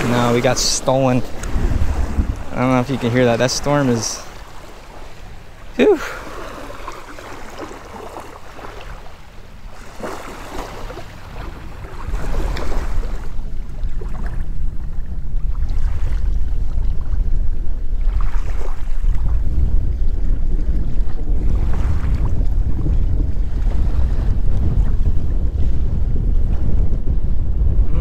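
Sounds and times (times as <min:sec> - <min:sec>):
small waves lapping: 0:00.0 - 0:14.4, 0:18.0 - 0:19.2
wind buffeting microphone: 0:00.0 - 0:28.0.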